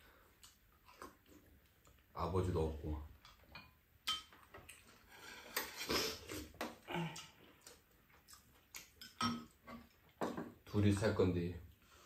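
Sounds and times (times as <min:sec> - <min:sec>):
utensils clinking on dishes: 0:09.0 - 0:09.6.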